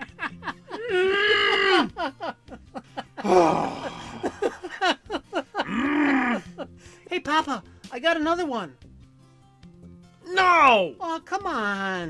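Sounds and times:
man giggling: 0:00.0 - 0:06.7
man groaning with effort: 0:00.7 - 0:02.1, 0:03.2 - 0:04.6, 0:05.6 - 0:06.7.

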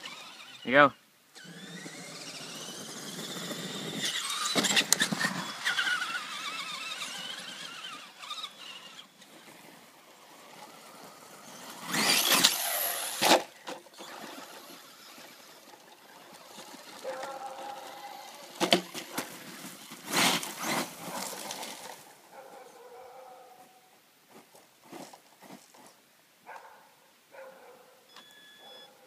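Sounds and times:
rc truck motor whining: 0:00.0 - 0:22.1.

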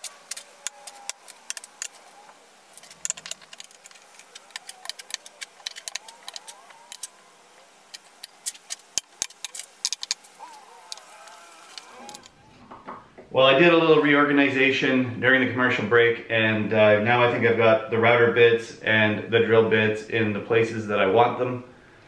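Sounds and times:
metal bits clicking onto magnets: 0:02.8 - 0:07.2.

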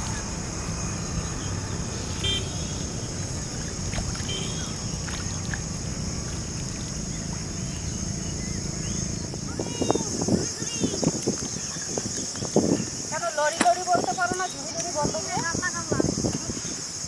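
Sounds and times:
low rumble: 0:00.0 - 0:10.2.

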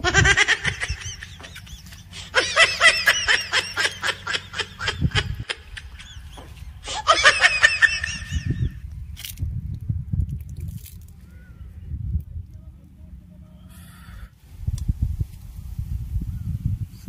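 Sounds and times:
person laughing: 0:00.0 - 0:08.8.

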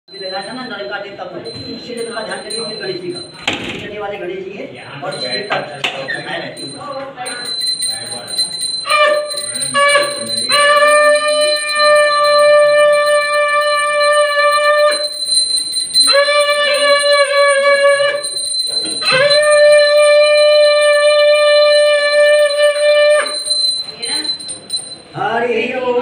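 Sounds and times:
voices: 0:00.1 - 0:26.0
conch shell blasts: 0:08.8 - 0:15.2, 0:16.0 - 0:18.4, 0:19.0 - 0:23.9.

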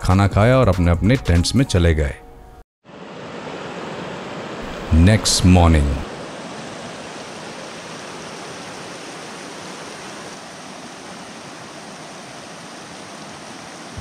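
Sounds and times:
stream rushing over rocks: 0:02.9 - 0:14.0.

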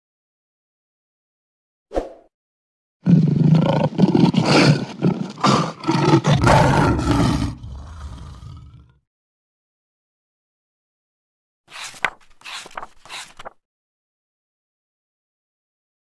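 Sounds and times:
roar sound effect: 0:03.0 - 0:09.0.

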